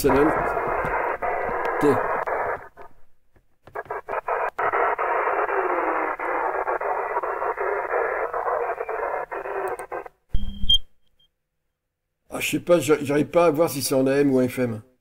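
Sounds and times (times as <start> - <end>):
radio static hiss: 0.0 - 3.0, 3.7 - 10.1
short beep: 10.3 - 11.3.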